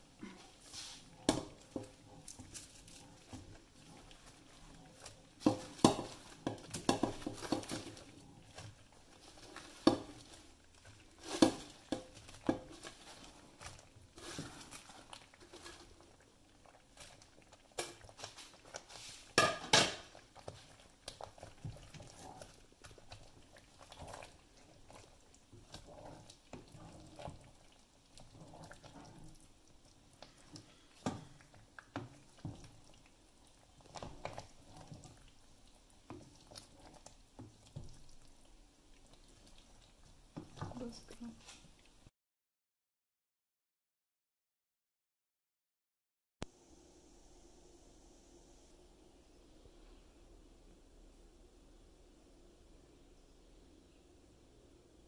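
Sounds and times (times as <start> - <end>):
wooden spoon stirring thick curry: 0.0 - 42.0
spoon knocking and scraping pot: 1.2 - 10.4, 11.2 - 15.9, 19.3 - 20.6.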